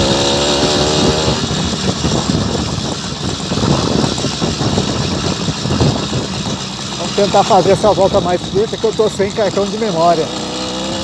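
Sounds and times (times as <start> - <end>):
wind on microphone: 0.0 - 6.8
small engine running: 0.0 - 11.0
bicycle rattling over potholes: 1.5 - 11.0.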